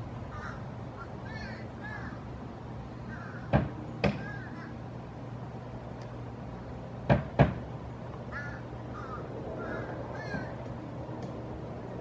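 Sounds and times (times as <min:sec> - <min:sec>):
woodpecker knocking on wooden board: 0:03.5 - 0:04.4, 0:07.1 - 0:07.6.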